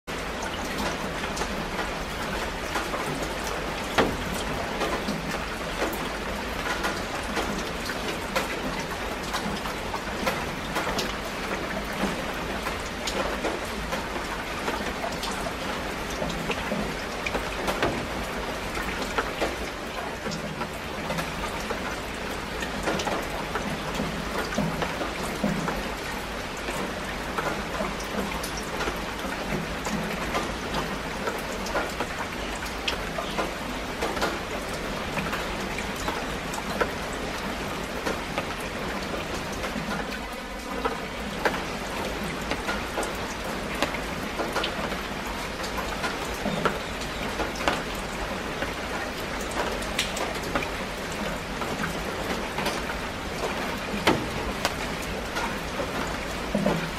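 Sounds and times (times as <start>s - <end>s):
rain on leaves: 0.1s - 56.9s
drops ticking: 52.7s - 56.9s.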